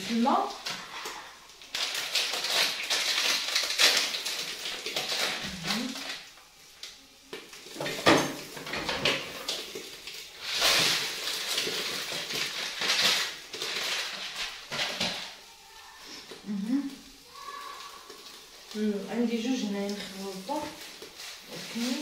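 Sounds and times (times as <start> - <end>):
plastic bowl and kitchenware clatter: 7.8 - 9.6, 10.5 - 15.4.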